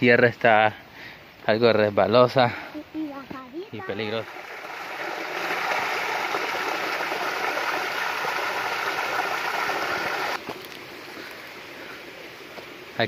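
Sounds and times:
faint steady hiss: 0:00.0 - 0:13.0
waterfall splashing into pool: 0:03.8 - 0:10.8.

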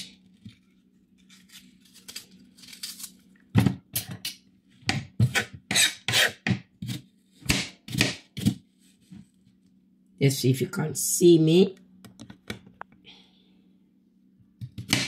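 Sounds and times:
knife chopping on board: 0:04.9 - 0:08.6, 0:14.6 - 0:15.0.

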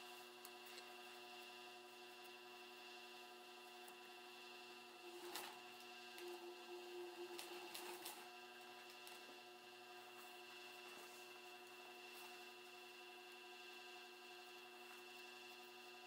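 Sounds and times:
sewing machine motor humming: 0:04.7 - 0:16.0.

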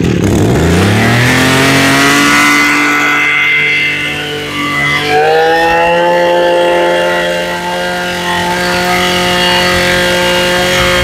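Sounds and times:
brush cutter engine revving: 0:00.0 - 0:11.0.

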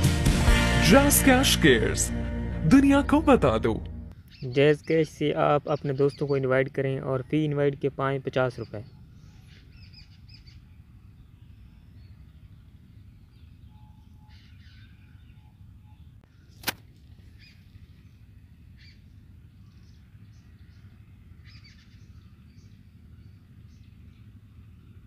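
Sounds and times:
steady low hum: 0:00.0 - 0:04.3, 0:06.4 - 0:25.0
sharp click: 0:16.6 - 0:16.8.

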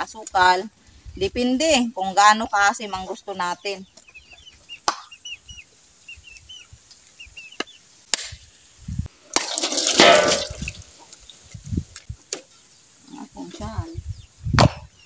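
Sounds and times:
water splashing into metal basin: 0:09.3 - 0:10.9.

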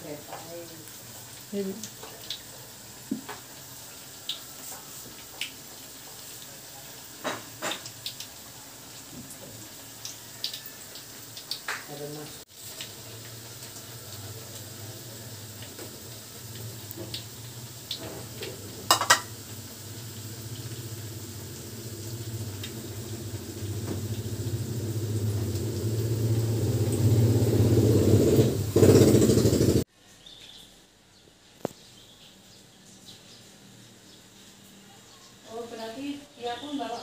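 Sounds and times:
frying in oil: 0:00.0 - 0:30.8, 0:31.5 - 0:37.0
low drone: 0:21.8 - 0:29.7.

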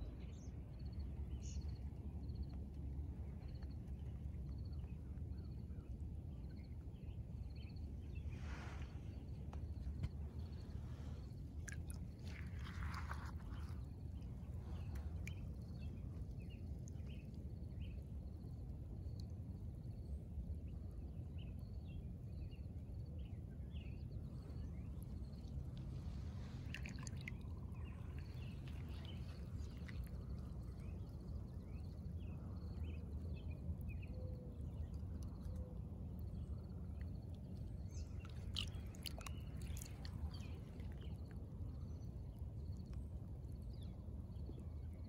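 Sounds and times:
steady low rumble: 0:00.0 - 0:45.0
wet weeds squished by hand: 0:11.7 - 0:13.9, 0:26.5 - 0:30.1.

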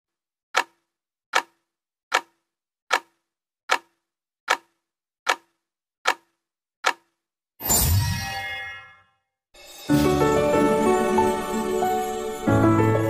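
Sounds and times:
clock-like ticking: 0:00.6 - 0:07.2.

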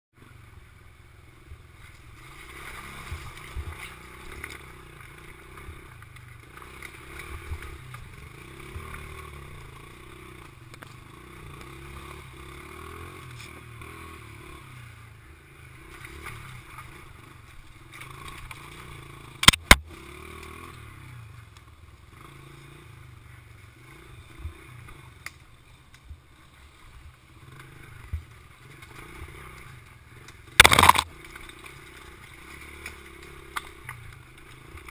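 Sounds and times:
mini bike engine revving: 0:01.4 - 0:25.5, 0:26.3 - 0:34.9
bumps and clatter on rough ground: 0:17.9 - 0:20.5, 0:28.0 - 0:34.9
sharp knocks: 0:30.6 - 0:31.0.

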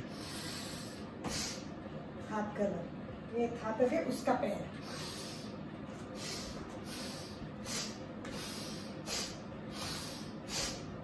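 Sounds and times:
woman's forceful exercise breaths: 0:00.0 - 0:01.8, 0:04.8 - 0:11.0.

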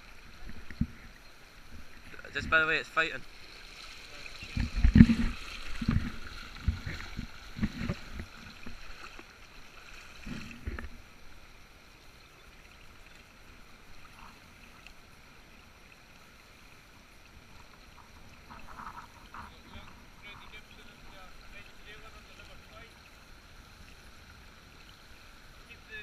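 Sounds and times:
faint river rush: 0:00.0 - 0:26.0
water sloshing around legs: 0:03.3 - 0:11.0.

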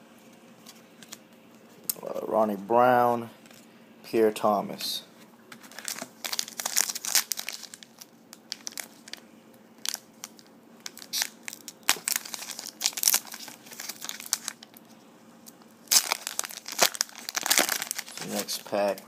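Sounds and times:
foil wrapper crinkling and tearing: 0:05.6 - 0:09.2, 0:09.8 - 0:14.9, 0:15.8 - 0:19.0.

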